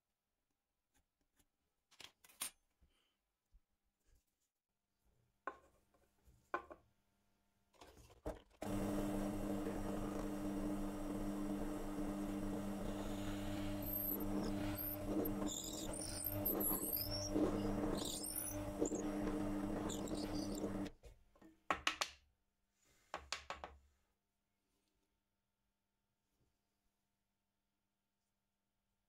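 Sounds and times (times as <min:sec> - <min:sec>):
small power tool motor running: 0:08.6 - 0:20.9
high wavering squeaks: 0:12.9 - 0:20.9.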